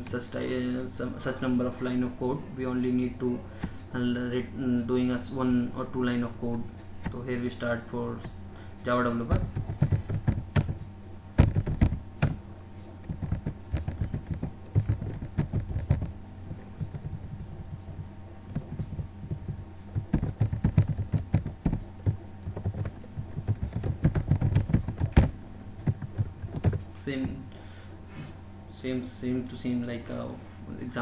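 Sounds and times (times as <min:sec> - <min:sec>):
steady low hum: 0:00.0 - 0:31.0
typing on computer keyboard: 0:11.4 - 0:12.3, 0:13.0 - 0:16.1, 0:18.5 - 0:26.8.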